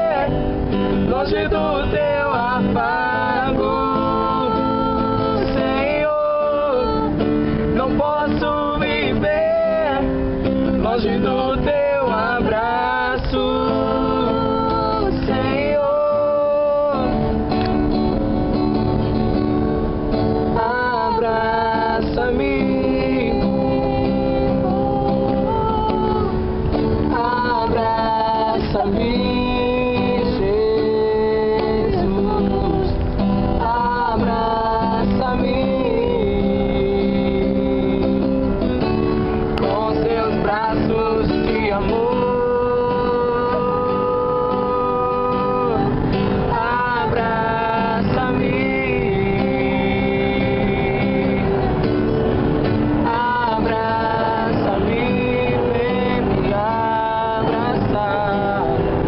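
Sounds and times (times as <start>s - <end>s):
strummed acoustic guitar: 0.0s - 59.0s
woman singing worship song: 20.6s - 26.4s, 30.3s - 36.8s.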